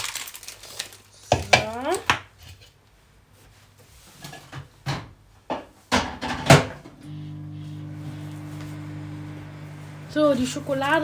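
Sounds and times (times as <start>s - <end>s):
microwave humming: 6.8s - 11.0s.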